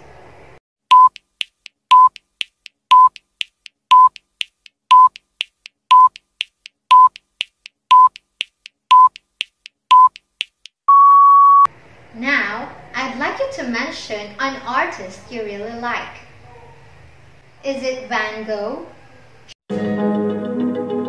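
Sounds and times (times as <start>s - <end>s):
short loud timer beeps: 0.9s - 1.2s, 1.9s - 2.2s, 2.9s - 3.2s, 3.9s - 4.2s, 5.9s - 6.2s, 6.9s - 7.2s, 7.9s - 8.2s, 8.9s - 9.2s, 9.9s - 10.2s.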